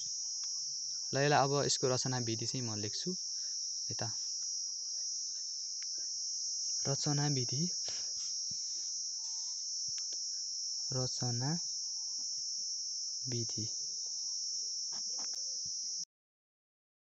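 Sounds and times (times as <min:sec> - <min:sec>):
insect chorus: 0:00.0 - 0:16.1
person speaking: 0:01.2 - 0:03.2, 0:06.9 - 0:08.1, 0:13.3 - 0:13.7.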